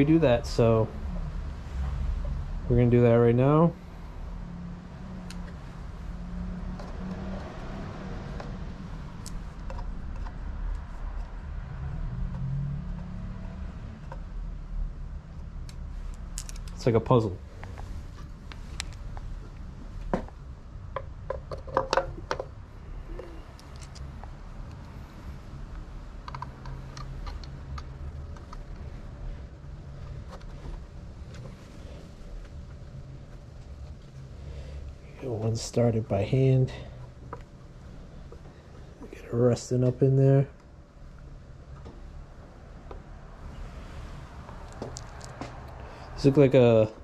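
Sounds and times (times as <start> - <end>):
steady low hum: 0.0 - 47.0
light clicks and taps: 25.7 - 28.9.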